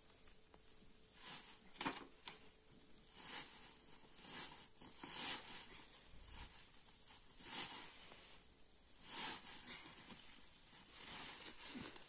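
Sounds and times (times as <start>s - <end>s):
dry straw rustling: 2.9s - 12.0s.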